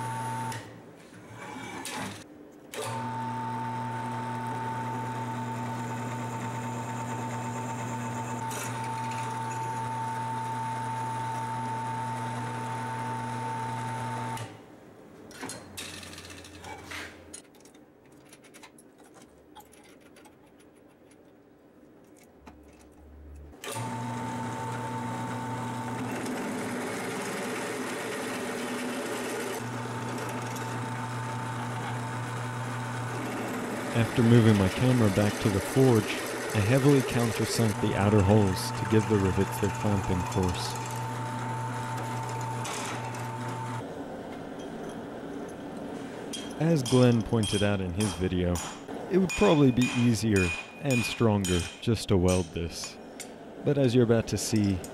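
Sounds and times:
drill press motor humming: 0.0 - 0.7, 2.8 - 14.6, 23.6 - 46.4.

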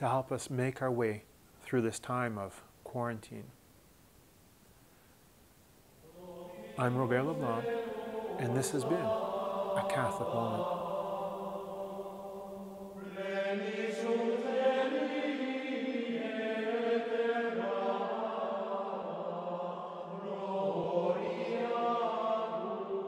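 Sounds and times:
choir chanting long notes: 6.0 - 23.0.

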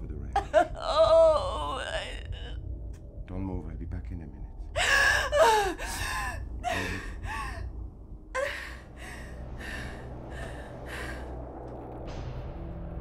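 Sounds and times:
woman crying with gasping sobs: 0.4 - 2.6, 4.8 - 11.4.

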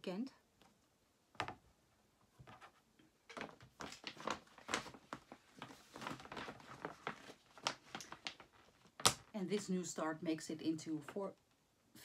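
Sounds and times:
objects knocking and tapping on desk: 1.4 - 1.6.

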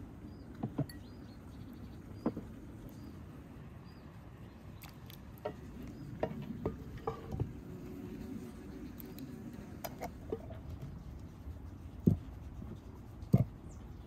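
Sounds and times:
wet patters of seeds: 4.7 - 6.0.

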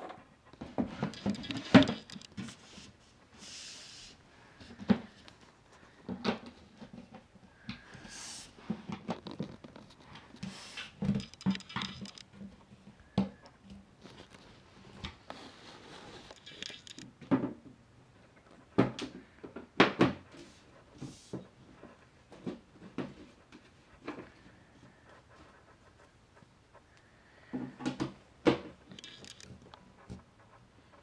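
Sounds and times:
screwdriver on metal fittings: 1.0 - 2.4, 11.0 - 12.3, 16.3 - 17.1, 28.9 - 29.7.

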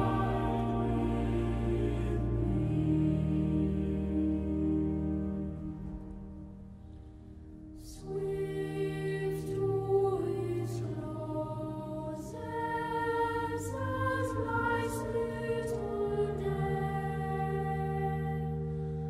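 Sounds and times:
slow hymn music: 0.0 - 19.0.

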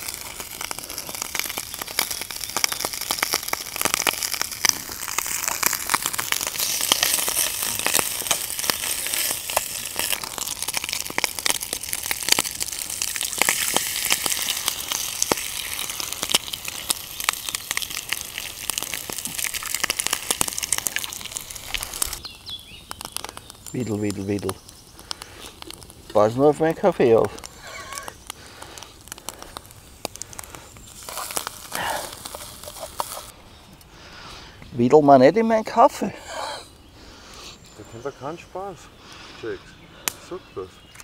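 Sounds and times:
food sizzling in pan: 0.0 - 28.2, 30.0 - 33.3
campfire crackling: 0.0 - 41.0.

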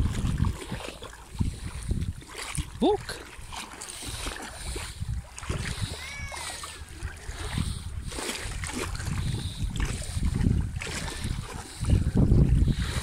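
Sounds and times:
water sloshing around legs: 0.0 - 13.0
wind rumbling on microphone: 0.0 - 13.0.

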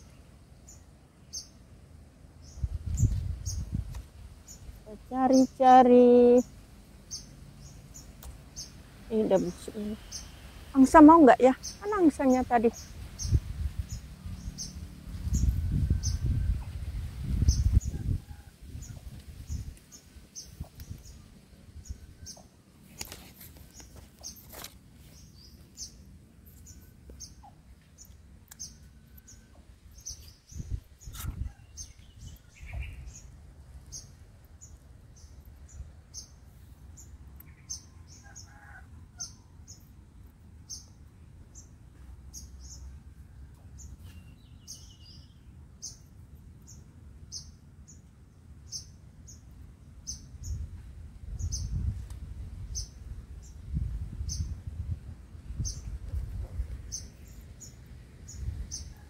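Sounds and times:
small bird chirping: 0.0 - 1.6, 2.4 - 38.6, 43.7 - 52.0, 52.6 - 54.6, 55.4 - 59.0
low outdoor rumble: 0.0 - 38.2.

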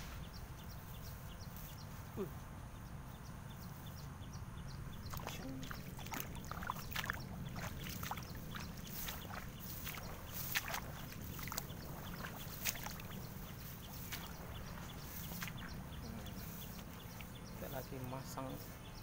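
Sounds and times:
low steady rumble: 0.0 - 19.0
footsteps wading through water: 4.8 - 18.1.

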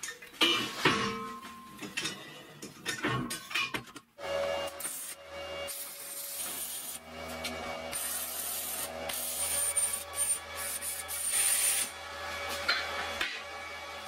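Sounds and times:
welding arc crackling and hissing: 4.8 - 7.0, 7.9 - 11.9.

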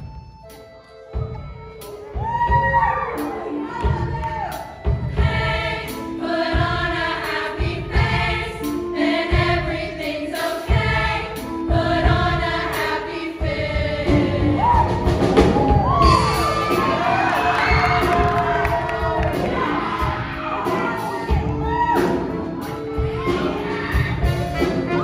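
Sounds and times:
instrumental accompaniment: 0.0 - 25.0
choir singing in harmony: 3.2 - 25.0
drum hits: 13.4 - 25.0.

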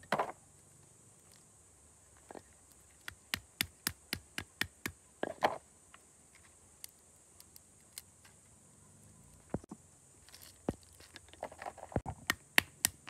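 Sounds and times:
faint ticks of shell pieces: 0.5 - 1.5, 5.9 - 9.6.

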